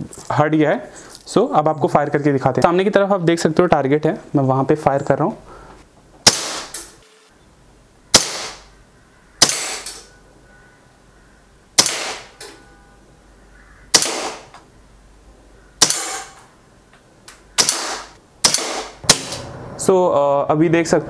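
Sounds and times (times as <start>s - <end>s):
air pistol shots with echo: 6.2s - 7.0s, 8.1s - 8.7s, 9.4s - 10.1s, 11.8s - 12.4s, 13.9s - 14.5s, 15.8s - 16.4s, 17.6s - 19.5s.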